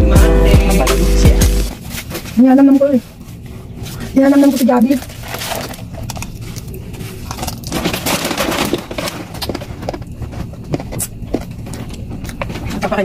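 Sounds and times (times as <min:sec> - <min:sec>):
paper wrappers crinkling: 0:01.7 - 0:10.6.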